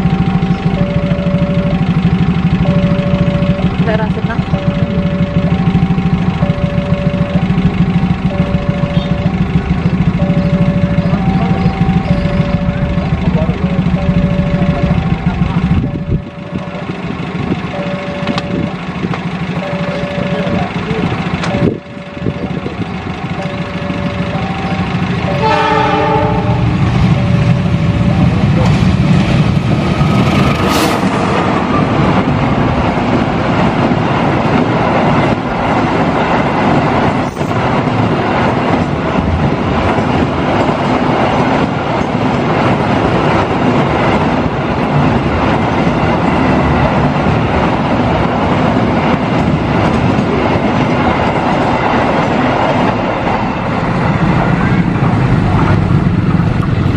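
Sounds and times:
train passing rumble: 0.0 - 56.9
wheels clacking over rail joints: 0.0 - 56.9
train horn: 23.7 - 27.8.

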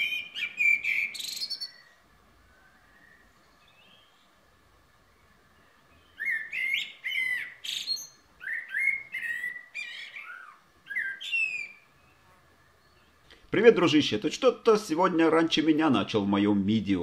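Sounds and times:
blackbird singing: 0.0 - 4.4, 5.1 - 14.2.

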